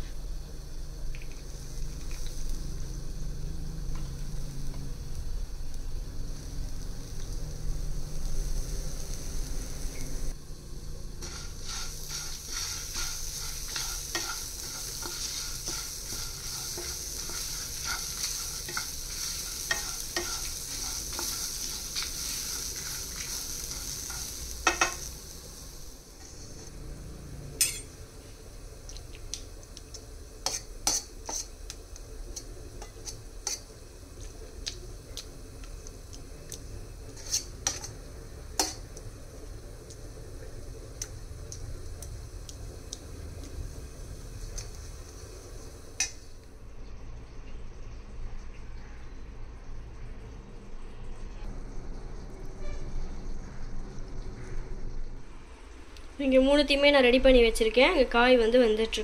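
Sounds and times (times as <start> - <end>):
spices sizzling in a pan: 0.0 - 46.8
wooden spatula scraping a pan: 11.2 - 25.0, 26.2 - 26.8, 37.1 - 38.0.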